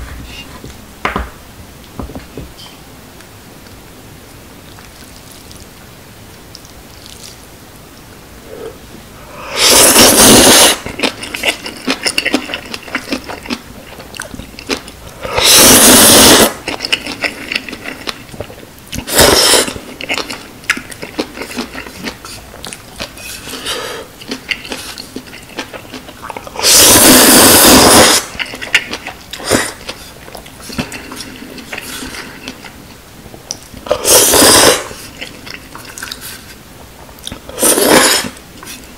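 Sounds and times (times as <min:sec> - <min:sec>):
noodles slurped loudly: 0:09.5 - 0:13.5, 0:15.2 - 0:18.0, 0:19.0 - 0:20.3, 0:26.5 - 0:30.0, 0:33.9 - 0:35.3, 0:37.5 - 0:38.4
wet chewing: 0:09.7 - 0:15.6, 0:16.4 - 0:26.8, 0:28.1 - 0:36.6.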